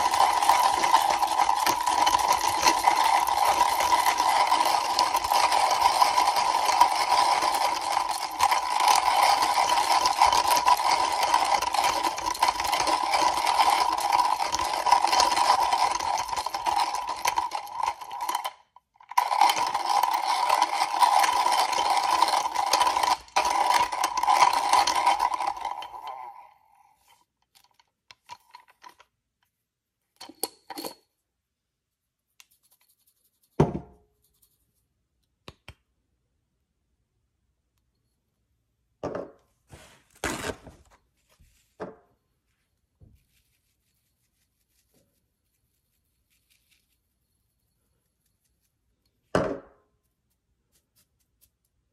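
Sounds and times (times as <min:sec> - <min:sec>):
hand coffee grinder crunching beans: 0:00.0 - 0:26.5, 0:40.1 - 0:41.0.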